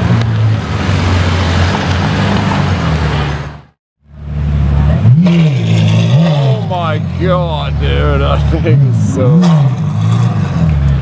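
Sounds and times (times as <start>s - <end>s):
engine revving: 4.2s - 11.0s.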